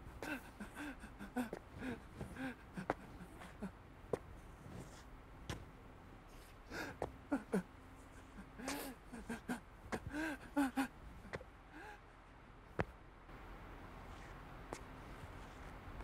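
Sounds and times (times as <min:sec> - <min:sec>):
man sobbing: 0:00.1 - 0:03.8, 0:06.7 - 0:12.0.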